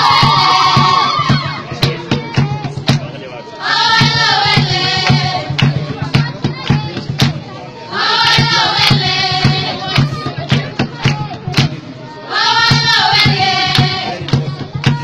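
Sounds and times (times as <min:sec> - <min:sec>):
steady percussive beat: 0:00.0 - 0:15.0
girls singing in unison: 0:03.4 - 0:06.2, 0:07.8 - 0:15.0.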